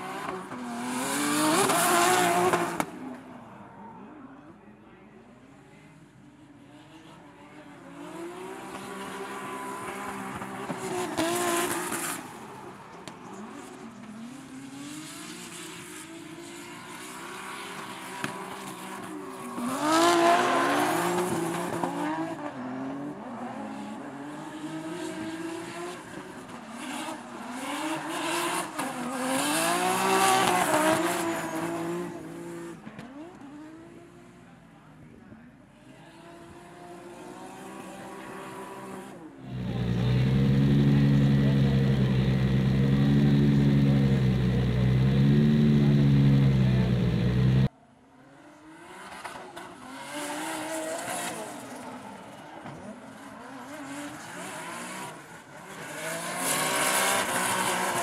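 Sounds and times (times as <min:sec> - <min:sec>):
car engine revving hard: 0:39.4 - 0:47.7
tyres screeching: 0:39.5 - 0:47.7.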